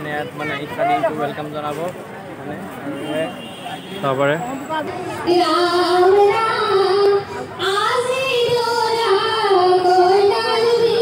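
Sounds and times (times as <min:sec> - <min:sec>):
women singing over loudspeakers: 0:05.0 - 0:11.0.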